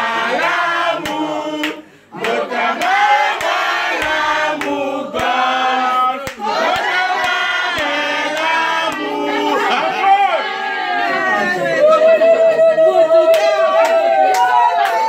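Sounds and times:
group of people singing: 0.0s - 11.8s.

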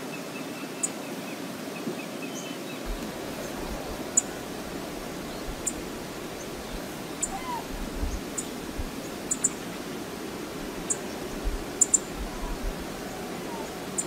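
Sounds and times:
steady rushing background noise: 2.8s - 14.0s
low rumbles: 2.9s - 13.8s.

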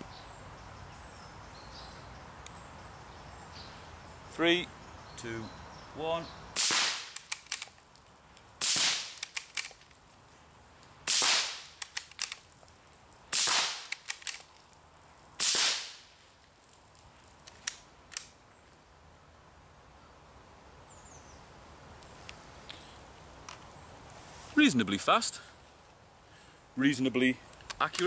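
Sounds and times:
rifle shots: 6.6s - 7.6s, 8.6s - 9.7s, 11.1s - 12.1s, 13.3s - 14.4s, 15.4s - 16.0s
rifle bolt clicks: 7.1s - 7.8s, 9.2s - 10.0s, 11.8s - 12.4s, 13.8s - 14.6s.

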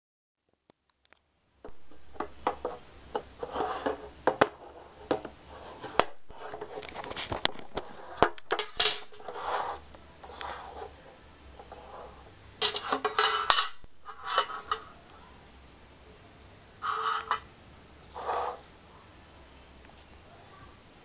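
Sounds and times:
rustling: 1.7s - 15.2s, 16.8s - 18.7s.

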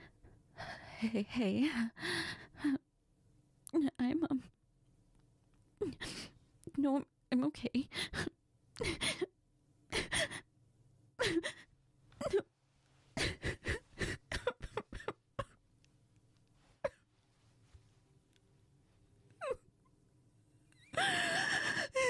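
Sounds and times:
woman sobbing: 5.8s - 6.3s, 8.0s - 9.3s, 9.9s - 10.5s, 11.2s - 12.5s, 13.2s - 15.6s, 20.8s - 22.0s.

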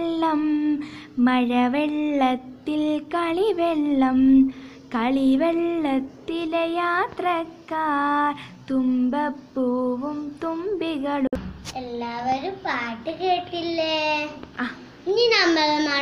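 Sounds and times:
girl singing: 0.0s - 12.5s.

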